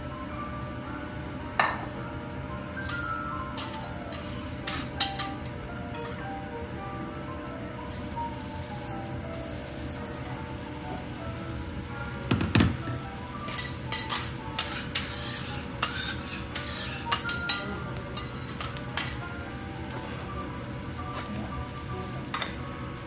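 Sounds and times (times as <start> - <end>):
faint music: 0.0 - 23.0
metal spatulas scraping griddle: 2.8 - 5.3, 13.5 - 19.2
butter sizzling on a griddle: 3.6 - 5.2, 7.8 - 23.0.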